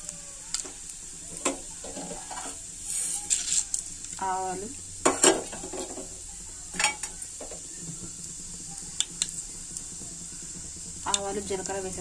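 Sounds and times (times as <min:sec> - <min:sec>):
hot oil sizzling: 0:00.0 - 0:12.0
seeds popping: 0:07.0 - 0:11.9.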